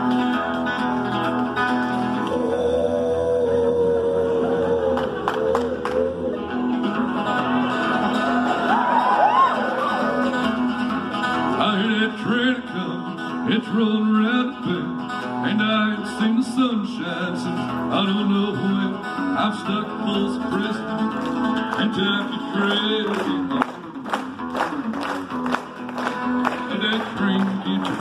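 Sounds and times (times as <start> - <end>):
acoustic guitar strummed: 0.0 - 28.0
man singing: 2.0 - 7.5, 11.5 - 24.2, 26.5 - 28.0.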